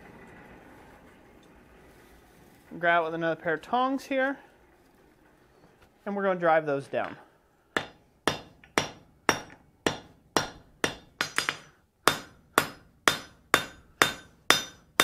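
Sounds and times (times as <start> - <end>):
hammer striking steel on anvil: 7.8 - 15.0.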